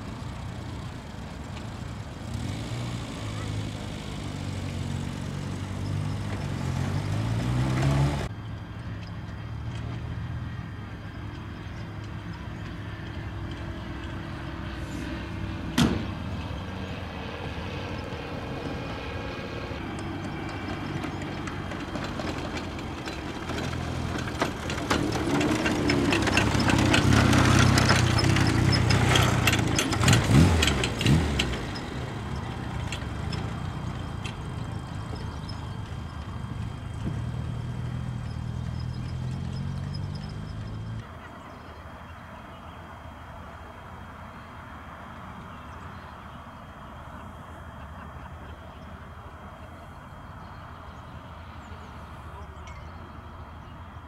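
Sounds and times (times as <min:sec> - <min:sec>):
twin radial aircraft engines: 0:00.0 - 0:54.0.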